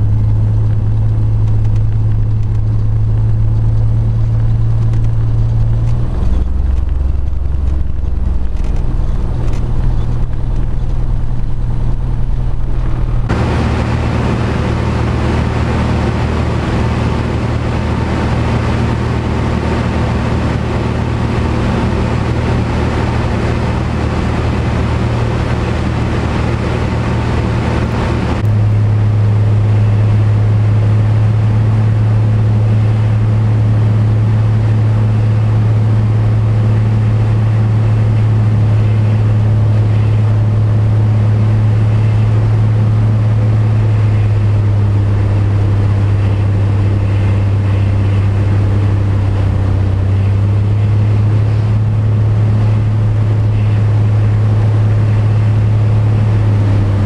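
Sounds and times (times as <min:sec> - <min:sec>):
light aircraft engine droning: 0:00.0 - 0:57.0.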